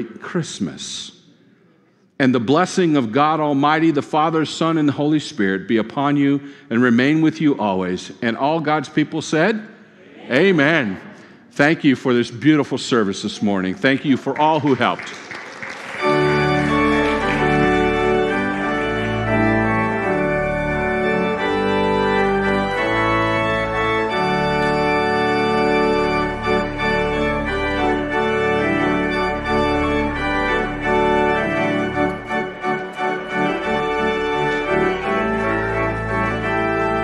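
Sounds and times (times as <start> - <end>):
organ playing slow held chords: 15.6 - 37.0.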